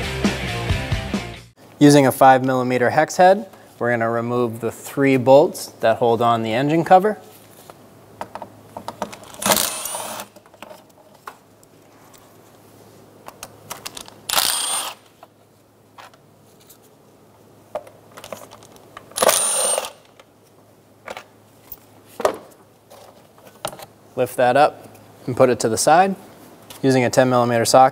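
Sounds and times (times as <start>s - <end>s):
cordless driver spinning bolts: 14.3s - 15.0s.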